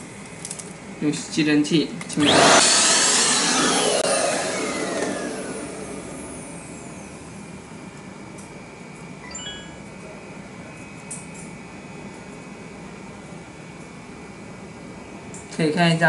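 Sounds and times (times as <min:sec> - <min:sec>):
vacuum cleaner motor spinning down: 0:02.2 - 0:07.5
short high beeps: 0:09.2 - 0:09.8.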